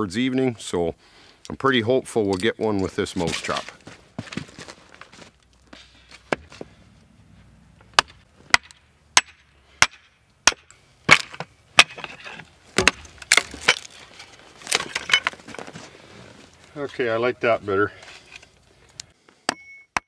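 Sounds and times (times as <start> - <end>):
hatchet striking wood: 7.9 - 12.2, 12.8 - 14.0, 19.5 - 20.0
wood splintering cracks: 12.8 - 15.7.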